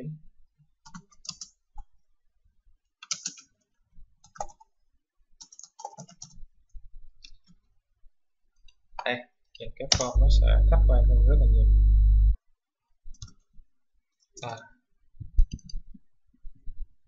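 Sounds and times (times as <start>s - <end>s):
computer keyboard typing: 0.8s - 1.6s, 3.0s - 3.5s, 4.2s - 4.7s, 5.4s - 6.4s.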